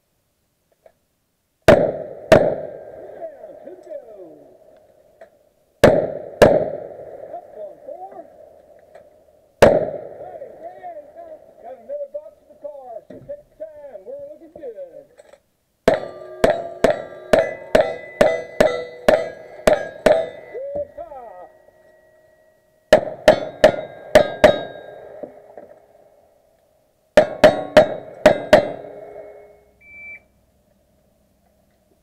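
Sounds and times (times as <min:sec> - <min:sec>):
rifle shots: 0:01.7 - 0:03.3, 0:05.8 - 0:07.7, 0:09.6 - 0:10.4, 0:15.9 - 0:20.6, 0:22.9 - 0:25.7
steel targets ringing: 0:15.9 - 0:25.6, 0:27.2 - 0:29.8.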